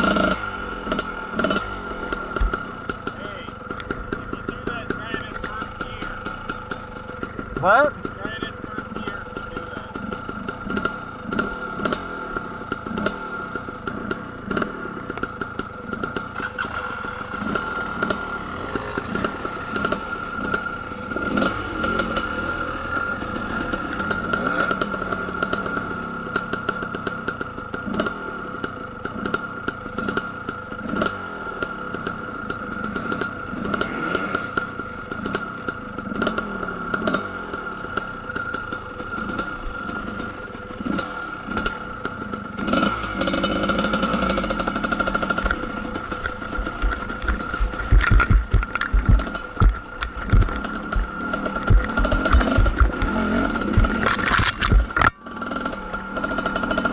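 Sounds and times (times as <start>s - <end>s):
dirt bike engines revving: 0.0s - 56.9s
rattling clatter: 43.2s - 55.2s.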